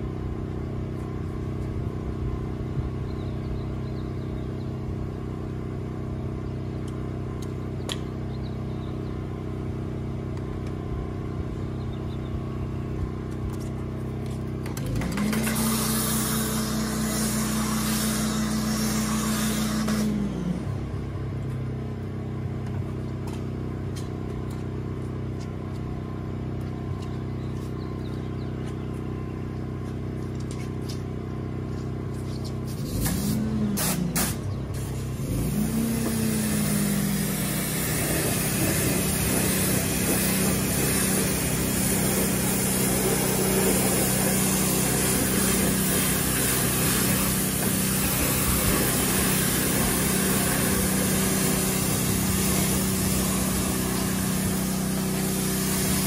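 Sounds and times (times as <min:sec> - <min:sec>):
pressure washer pump running: 0:00.0 - 0:56.0
steady low hum: 0:00.0 - 0:56.0
hiss of spraying water: 0:15.2 - 0:20.3, 0:32.8 - 0:56.0.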